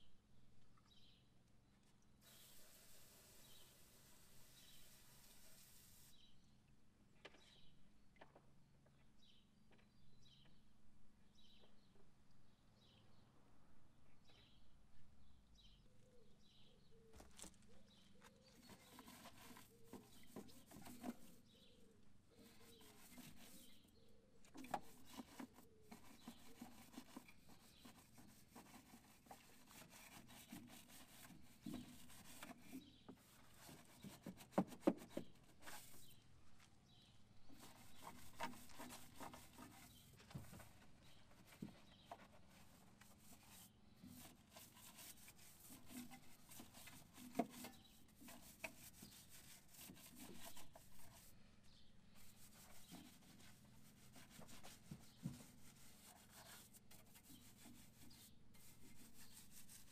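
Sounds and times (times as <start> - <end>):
faint rubbing and scrubbing: 2.2 - 6.3, 17.2 - 59.9.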